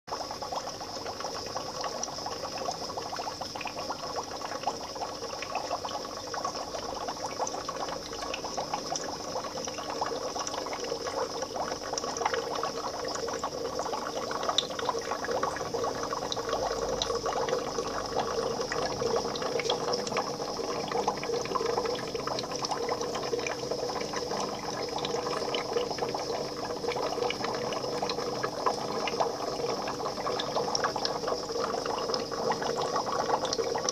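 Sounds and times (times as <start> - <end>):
fish tank water bubbling: 0.1 - 33.9
steady hum: 10.4 - 33.9.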